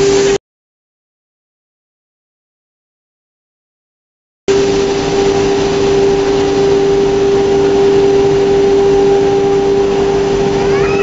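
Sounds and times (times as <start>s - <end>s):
machining hiss: 0.0s - 0.4s.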